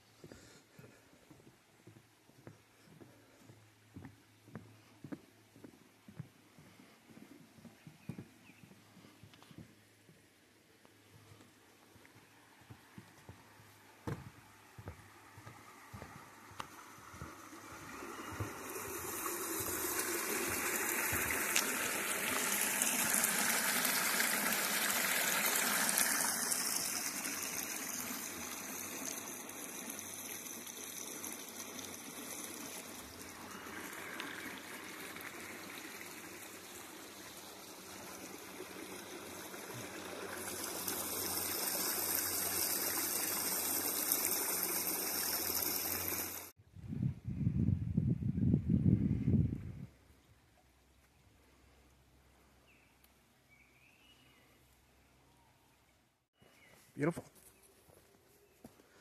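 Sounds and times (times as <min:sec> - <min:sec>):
stream water running over rocks: 0:09.8 - 0:46.6.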